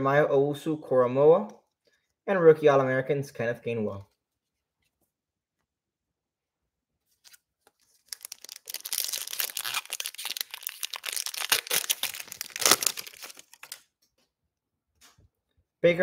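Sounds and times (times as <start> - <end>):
plastic card pack crinkling: 7.1 - 13.9.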